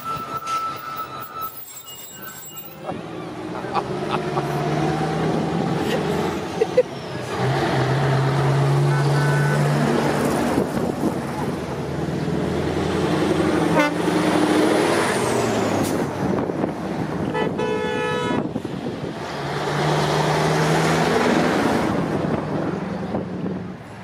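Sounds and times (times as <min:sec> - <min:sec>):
truck diesel engines running: 0:00.0 - 0:24.0
truck horn toot: 0:08.8 - 0:09.8, 0:13.6 - 0:14.1, 0:17.2 - 0:18.5.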